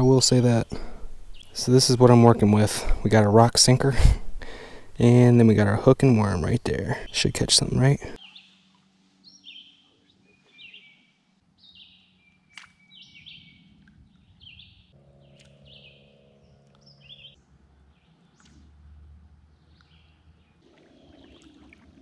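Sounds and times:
birds chirping: 0:00.0 - 0:21.7.

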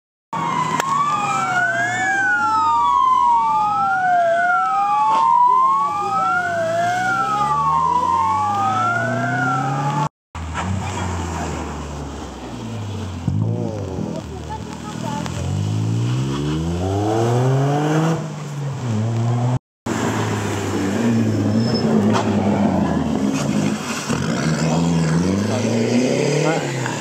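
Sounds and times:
siren wailing: 0:00.4 - 0:10.1
car engine revving: 0:05.9 - 0:27.0.

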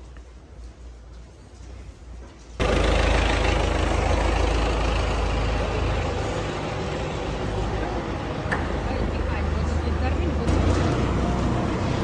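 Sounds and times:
heavy engine running: 0:02.6 - 0:12.0.

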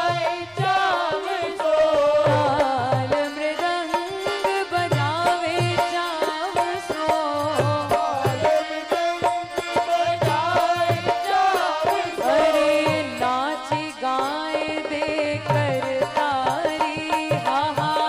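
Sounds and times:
devotional song melody: 0:00.0 - 0:18.0
harmonium: 0:00.0 - 0:18.0.

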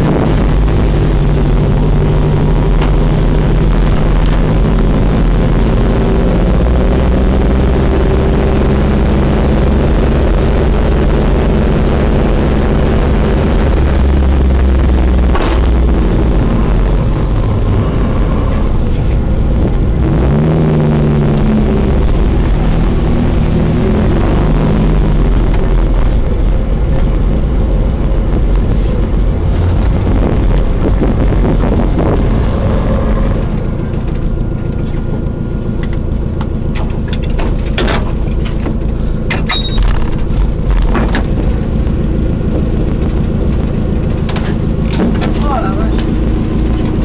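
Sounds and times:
car engine running inside cabin: 0:00.0 - 0:47.0
sharp clicks and knocks: 0:33.9 - 0:41.8, 0:43.4 - 0:47.0.

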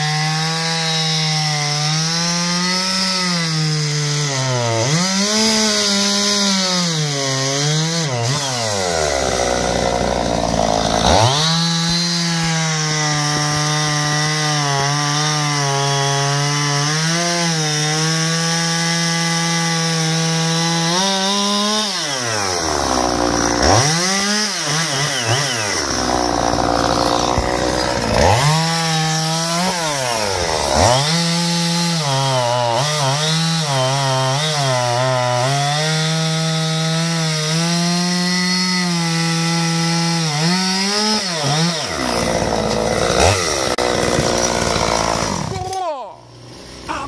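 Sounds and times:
chainsaw cutting log: 0:00.0 - 0:47.0.

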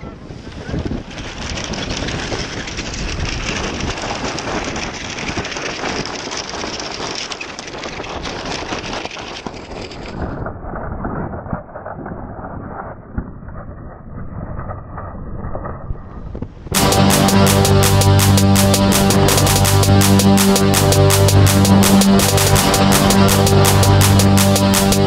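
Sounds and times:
wind buffeting microphone: 0:00.0 - 0:16.8.

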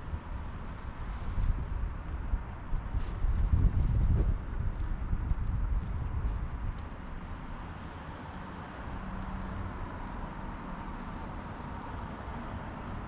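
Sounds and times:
outdoor rumble: 0:00.0 - 0:07.9.

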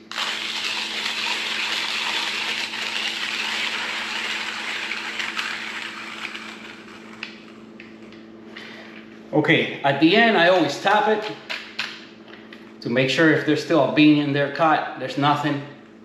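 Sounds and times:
hand coffee grinder grinding: 0:00.0 - 0:07.6.

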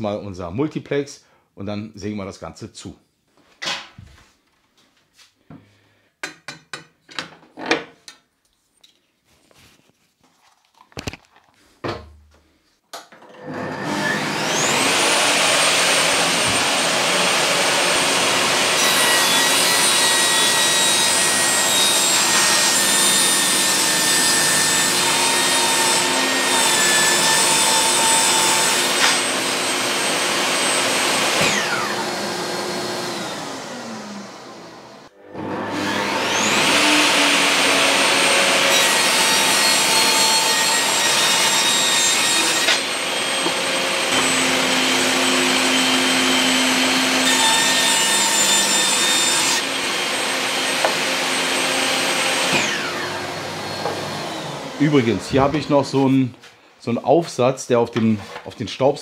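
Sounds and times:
saw blade cutting plywood: 0:13.4 - 0:34.1, 0:35.3 - 0:56.1
table saw motor whine: 0:13.4 - 0:55.9.

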